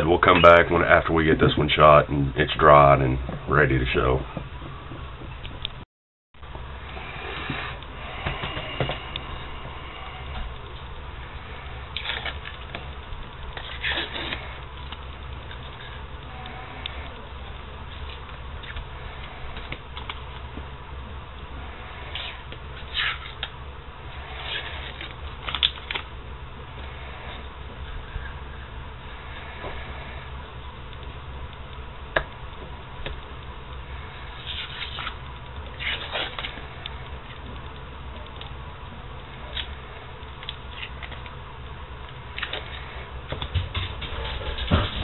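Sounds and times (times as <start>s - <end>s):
low hum: 0.0s - 5.8s, 6.4s - 45.0s
tape being peeled off: 34.4s - 36.6s.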